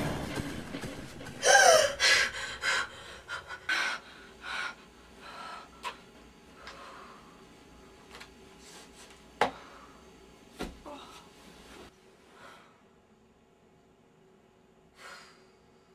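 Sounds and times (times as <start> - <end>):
woman breathing quickly: 1.3 - 7.6, 15.0 - 15.9
woman gasping: 1.4 - 5.9.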